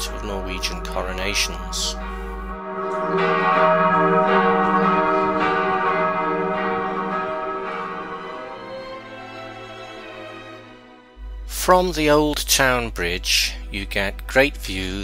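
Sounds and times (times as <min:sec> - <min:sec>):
church bells ringing: 0:00.0 - 0:11.7.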